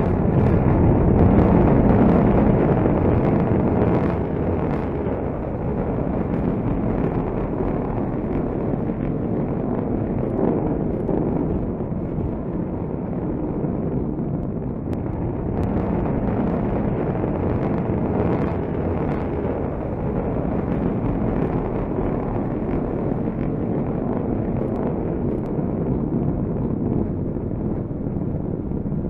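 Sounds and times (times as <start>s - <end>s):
rocket motor low rumble: 0.0s - 29.0s.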